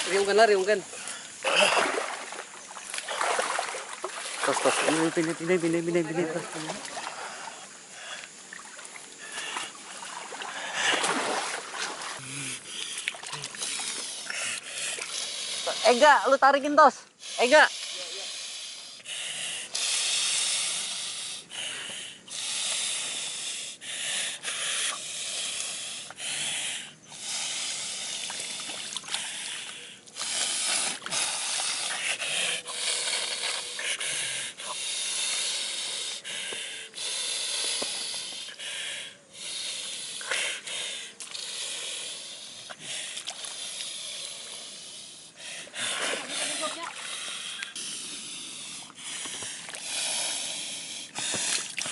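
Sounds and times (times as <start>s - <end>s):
man hissing and breathing hard: 12.2s - 16.0s, 17.1s - 51.9s.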